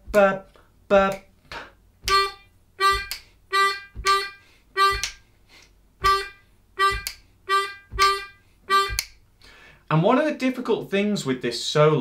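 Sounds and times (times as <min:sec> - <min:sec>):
harmonica notes: 0:02.1 - 0:05.2, 0:06.0 - 0:09.1.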